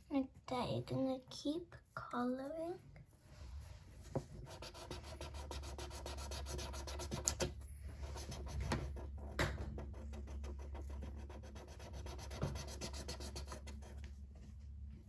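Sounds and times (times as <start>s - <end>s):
marker scratching on paper: 4.4s - 14.1s.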